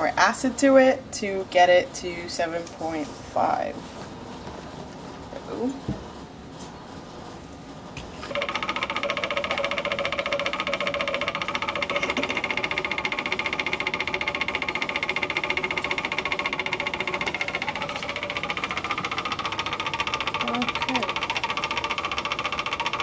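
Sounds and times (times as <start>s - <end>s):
stir bar rattling in bottle: 8.3s - 23.0s.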